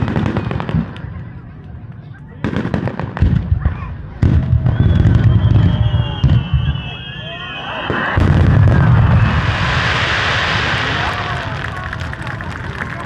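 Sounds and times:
fireworks booming: 2.4 - 12.9
fireworks whistling: 4.5 - 12.6
fireworks hissing crackle: 6.7 - 13.0.

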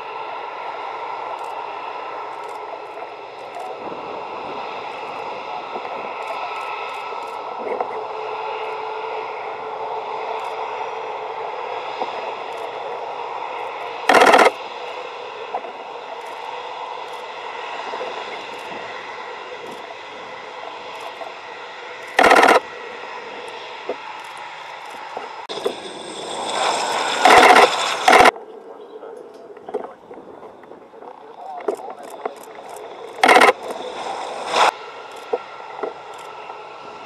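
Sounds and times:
aircraft engines whining: 0.0 - 37.0
loud noise bursts: 14.0 - 14.6, 22.1 - 22.6, 26.5 - 28.3, 33.2 - 34.7.

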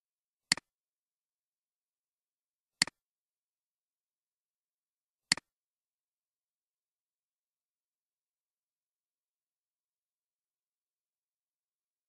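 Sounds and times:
computer mouse clicks: 0.5 - 0.7, 5.3 - 5.5.

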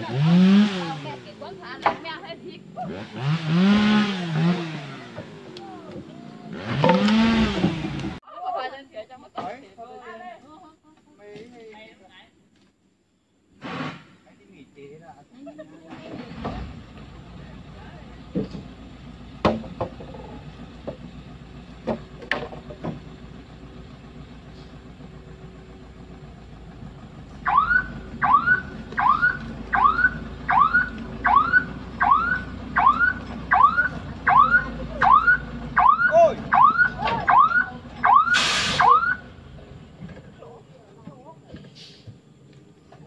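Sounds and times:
truck engine rumble: 0.0 - 8.2, 14.6 - 43.0
logs knocking onto truck: 6.7 - 8.2, 19.4 - 21.1, 21.8 - 23.2
air hiss burst: 13.6 - 14.2, 38.3 - 38.9, 41.8 - 42.1
truck reversing alarm whooping: 27.4 - 39.4.

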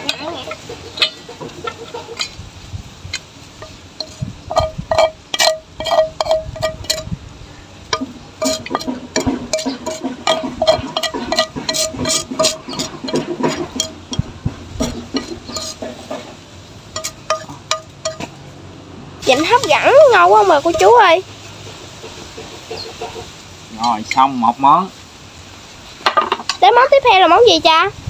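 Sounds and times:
chopsticks scraping a metal wok: 0.0 - 7.2, 7.9 - 18.5, 19.2 - 24.6.

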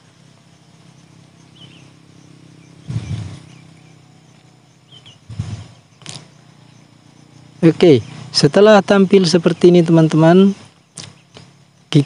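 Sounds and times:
low noise burst: 0.0 - 4.2, 4.8 - 8.5
steady low hum: 0.0 - 12.0.

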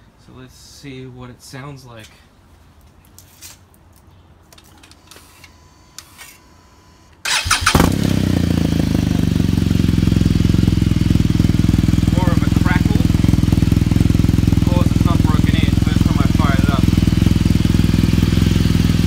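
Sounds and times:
motorcycle engine cranking: 7.2 - 10.0
motorcycle engine idling: 7.3 - 19.0.

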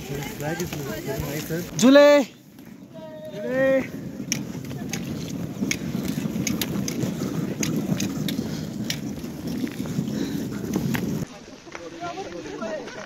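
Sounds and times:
footsteps crunching on snowy ice: 0.0 - 13.0
wind rumbling on microphone: 2.4 - 11.3.

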